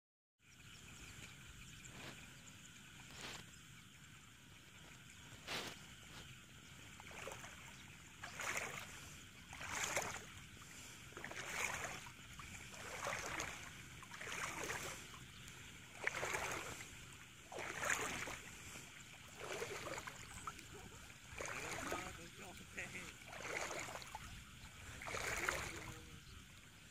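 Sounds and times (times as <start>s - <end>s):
wading splashing and sloshing: 0.6s - 26.9s.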